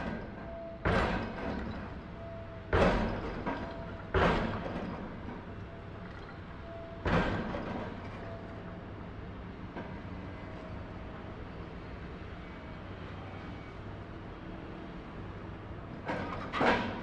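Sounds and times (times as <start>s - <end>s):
heavy machinery banging: 0.0s - 5.5s, 7.0s - 8.3s, 16.0s - 17.0s.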